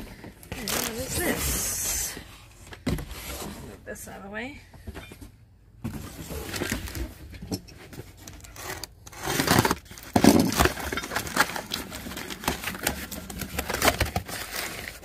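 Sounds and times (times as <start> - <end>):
box cutter slitting packing tape: 8.4 - 15.0.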